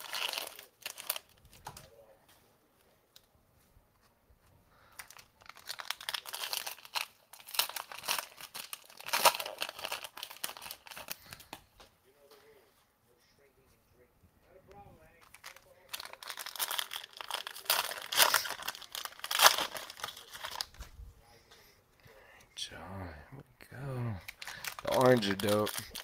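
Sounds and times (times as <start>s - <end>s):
plastic wrapping crinkling and tearing: 0.0s - 1.9s, 4.8s - 11.6s, 15.2s - 20.9s, 24.2s - 26.0s.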